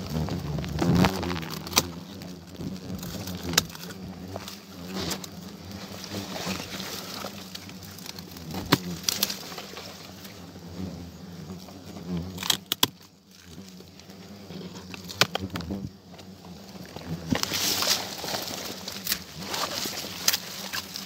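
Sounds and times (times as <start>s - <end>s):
twigs rustling: 0.0s - 10.4s, 16.2s - 21.0s
hornets buzzing: 0.0s - 21.0s.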